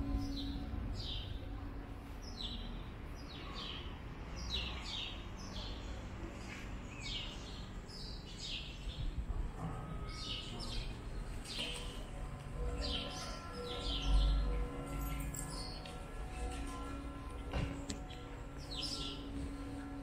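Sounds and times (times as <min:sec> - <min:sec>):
low background rumble: 0:00.0 - 0:04.6
birds chirping: 0:00.0 - 0:20.0.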